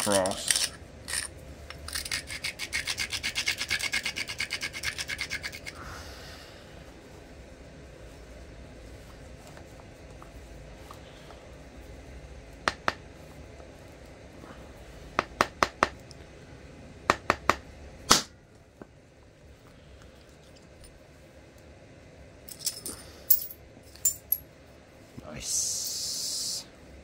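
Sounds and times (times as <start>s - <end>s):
thin high clinks: 22.5s - 24.4s.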